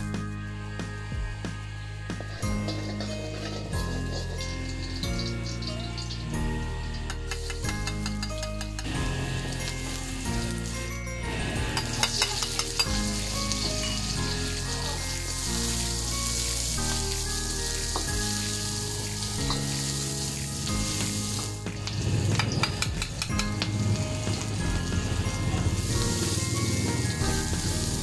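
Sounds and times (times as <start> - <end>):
metal ladle scraping wok: 2.2 - 28.0
onion sizzling in hot oil: 2.2 - 28.0
ladle clinks: 2.6 - 9.0.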